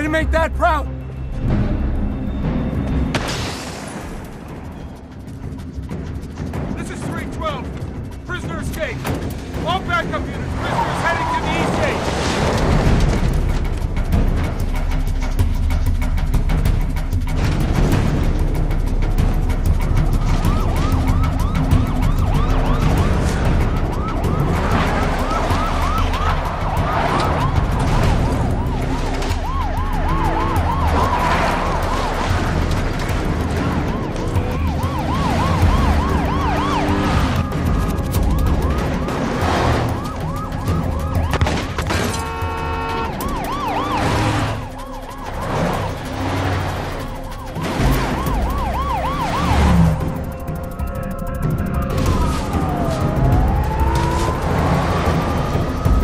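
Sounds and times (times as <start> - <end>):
car engines rumbling: 4.1 - 56.0
police sirens yelping: 9.6 - 12.3, 19.8 - 56.0.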